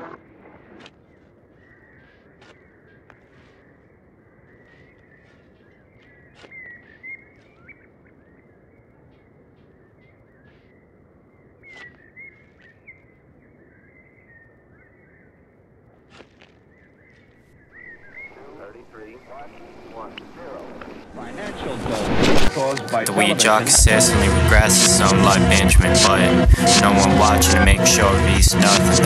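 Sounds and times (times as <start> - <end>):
small birds chirping: 0.1 - 15.4.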